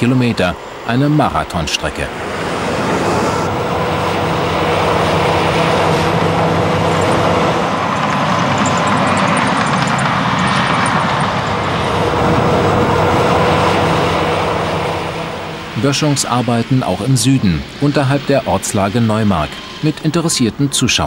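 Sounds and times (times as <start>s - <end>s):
diesel heavy machinery running: 0.0s - 21.0s.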